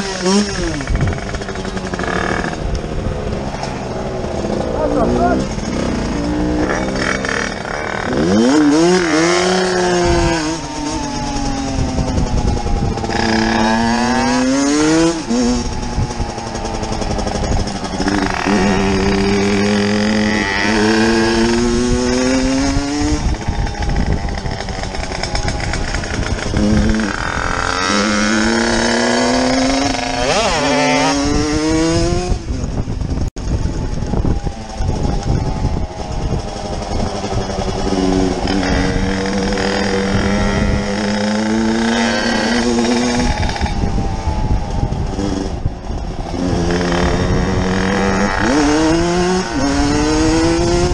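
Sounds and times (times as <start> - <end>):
dirt bike engine revving: 0.0 - 50.9
wind noise: 0.0 - 50.9.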